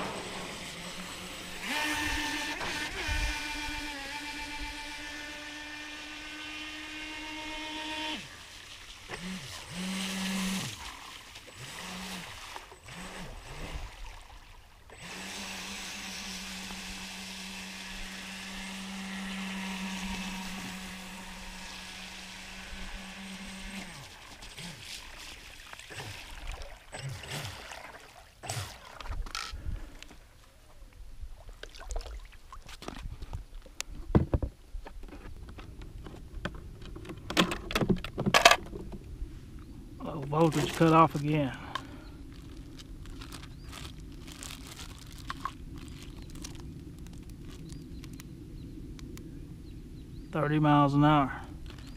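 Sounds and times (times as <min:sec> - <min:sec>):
electric motor whining: 0:00.0 - 0:08.4, 0:09.1 - 0:10.8, 0:11.6 - 0:13.8, 0:14.9 - 0:24.8.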